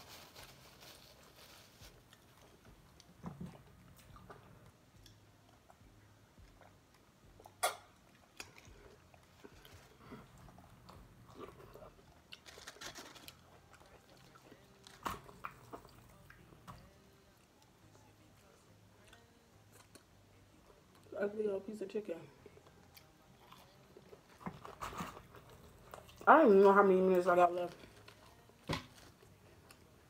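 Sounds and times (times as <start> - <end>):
chewing and crunching chicken wings: 3.8 - 16.5, 22.4 - 26.3.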